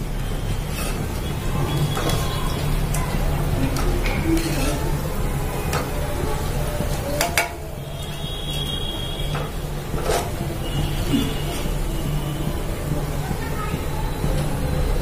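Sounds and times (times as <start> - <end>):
oil sizzling: 0.0 - 14.6
metal ladle scraping a pan: 0.3 - 5.9, 6.9 - 12.0.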